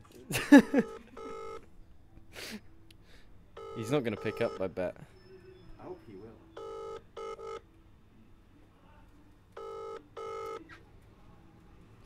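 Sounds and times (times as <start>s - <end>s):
phone ringing tone: 0.6s - 1.7s, 3.6s - 4.8s, 6.4s - 7.7s, 9.6s - 10.7s.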